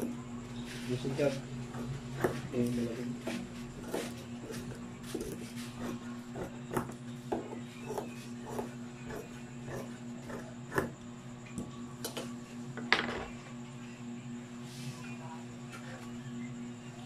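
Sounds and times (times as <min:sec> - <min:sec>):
steady low hum: 0:00.0 - 0:17.0
shears snipping fabric: 0:00.7 - 0:06.9.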